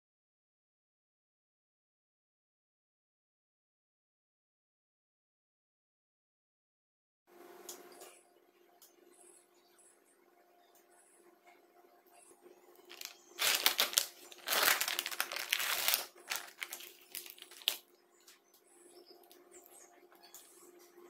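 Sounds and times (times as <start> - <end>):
plastic packaging crinkling: 12.8 - 17.8.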